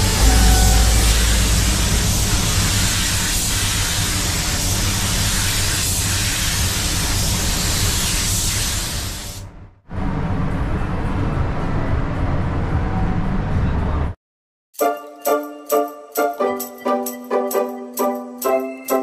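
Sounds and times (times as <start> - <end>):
paint spray gun hissing: 1.1 - 9.4.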